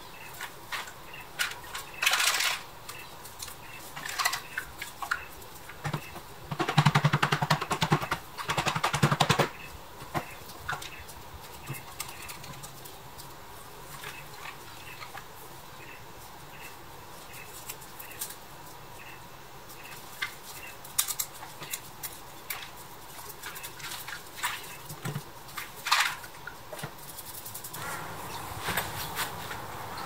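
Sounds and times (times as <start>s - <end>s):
metal toy clicks and scrapes: 0.7s - 5.3s.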